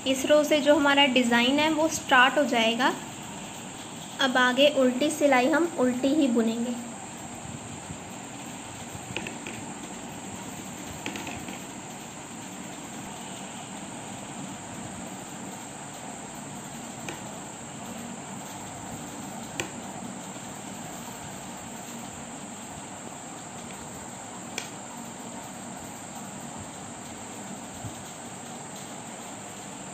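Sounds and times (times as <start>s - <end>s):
steady background hiss: 0.0s - 29.9s
knitting needles clicking: 11.0s - 11.7s, 24.5s - 24.8s.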